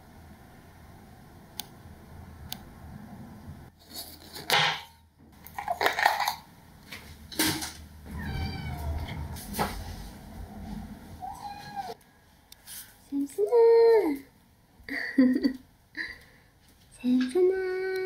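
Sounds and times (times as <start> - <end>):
kitten meowing: 8.2 - 9.2, 11.2 - 12.0.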